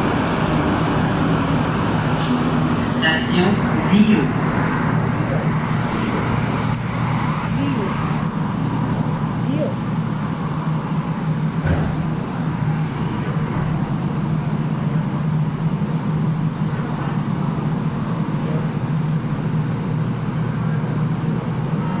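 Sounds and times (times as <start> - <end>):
metro train hum: 0.0 - 22.0
train knock: 11.0 - 18.1.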